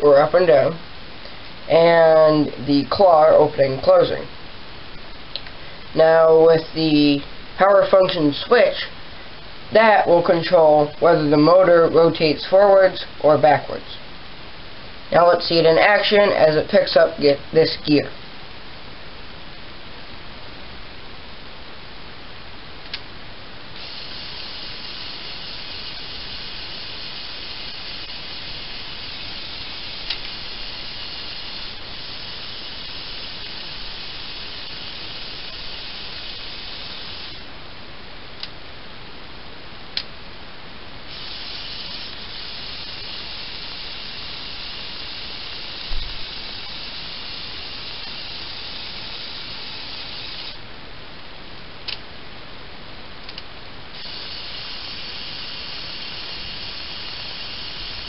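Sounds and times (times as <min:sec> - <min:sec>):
sharp clicks: 0:30.0 - 0:30.4, 0:53.2 - 0:53.5
electric motor whirring: 0:41.1 - 0:50.6.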